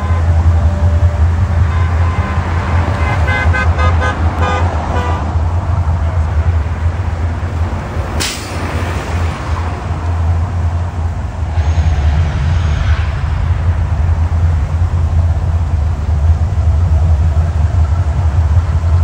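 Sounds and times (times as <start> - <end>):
horn tooting: 0.0 - 6.2
deep steady rumble: 0.0 - 19.0
traffic: 0.0 - 19.0
rush of fire: 4.2 - 19.0
bus air brake hiss: 8.2 - 9.0.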